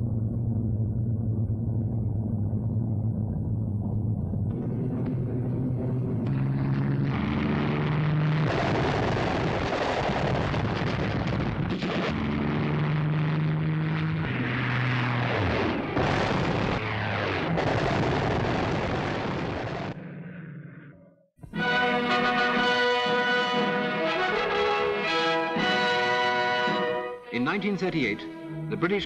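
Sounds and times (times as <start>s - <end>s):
plane diving past: 0.0s - 9.8s, 10.4s - 19.1s
bomb blasts: 0.0s - 27.6s
propeller aircraft droning: 0.0s - 29.0s.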